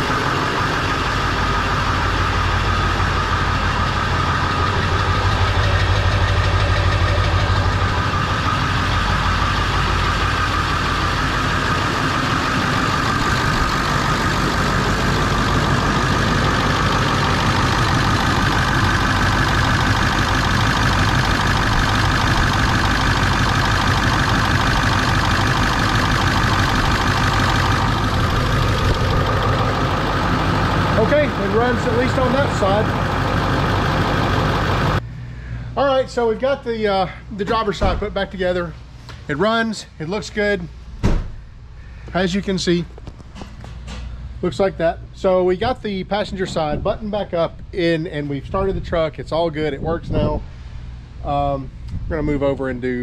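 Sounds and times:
steady whine: 0.0s - 40.7s
diesel engine idling: 0.0s - 46.4s.

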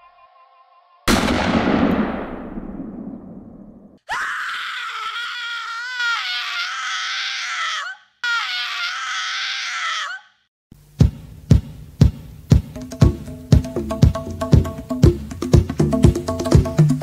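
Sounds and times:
woman screaming: 4.1s - 10.4s.

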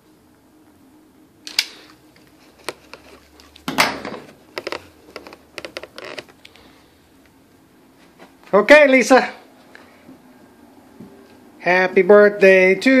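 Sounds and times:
handling clicks and knocks: 2.5s - 6.4s.

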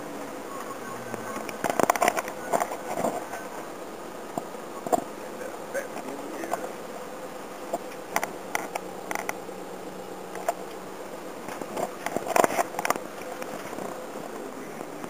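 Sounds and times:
engine and road hum in vehicle: 0.0s - 15.0s
clicks and rattles: 1.4s - 3.3s.

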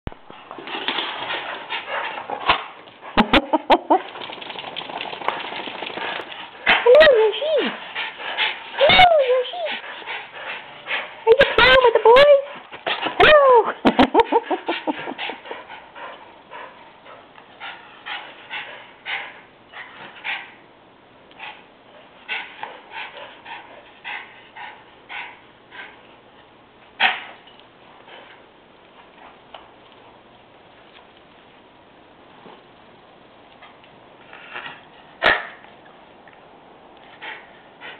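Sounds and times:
steady rustling: 4.0s - 11.5s
small dog barking: 35.2s - 35.6s.

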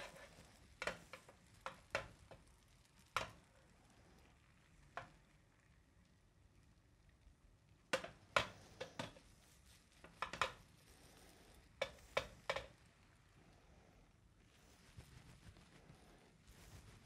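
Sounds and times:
spatula knocking and scraping pan: 0.0s - 2.5s, 3.1s - 3.5s, 7.9s - 9.3s, 10.0s - 12.8s.

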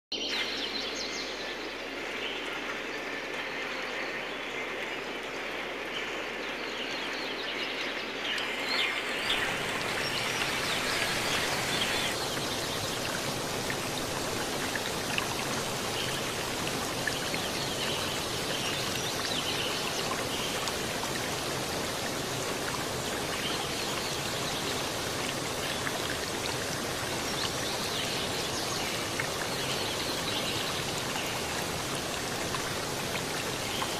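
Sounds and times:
rain falling on plants and paving: 8.6s - 33.9s.

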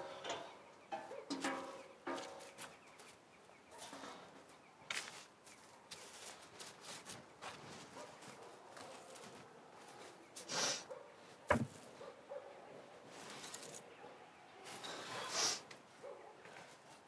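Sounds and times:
hissing breath: 15.0s - 15.7s.

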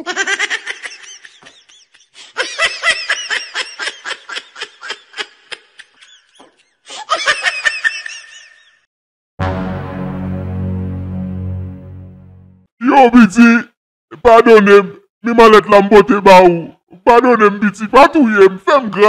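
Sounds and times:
man cackling laugh: 0.0s - 8.8s
music: 9.4s - 12.7s.

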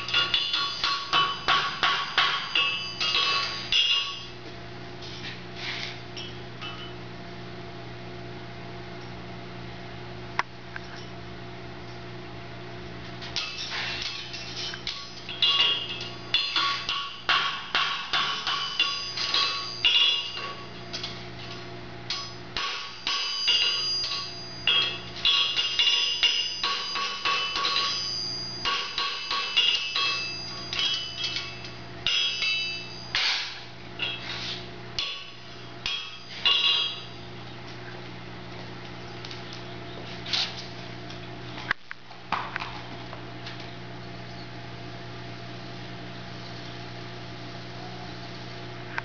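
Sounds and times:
hammer striking horseshoe on anvil: 0.0s - 4.3s, 6.2s - 7.0s, 13.4s - 37.5s
steady low hum: 0.0s - 49.0s.

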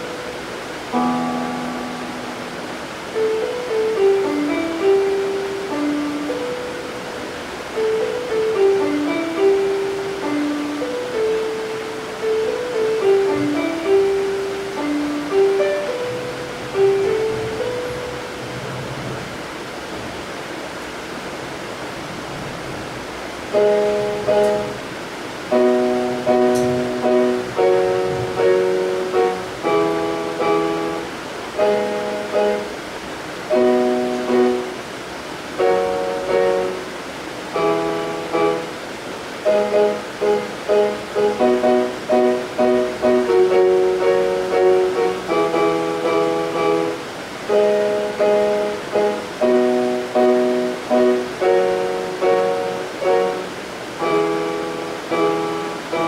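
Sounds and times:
soft instrumental chords: 0.0s - 18.7s, 23.5s - 24.9s, 25.5s - 32.8s
faint steady hiss: 0.0s - 56.0s.

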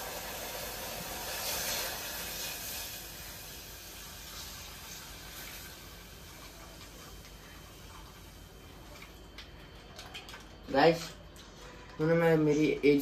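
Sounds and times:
tea hissing and sizzling in pan: 0.0s - 9.6s.

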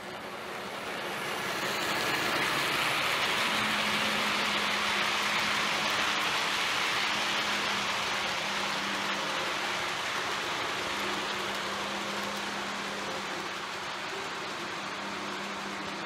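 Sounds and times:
model train wheels hissing on rail: 0.0s - 16.0s.

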